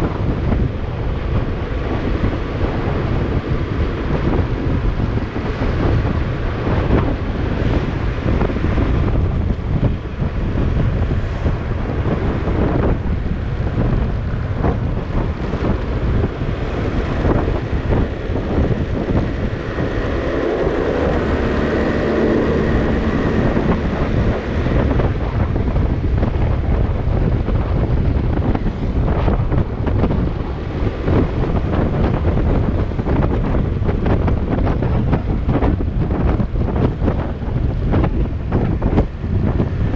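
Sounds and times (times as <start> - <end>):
road and engine noise: 0.0 - 39.9
steady hum: 0.0 - 39.9
wind buffeting microphone: 0.0 - 39.9.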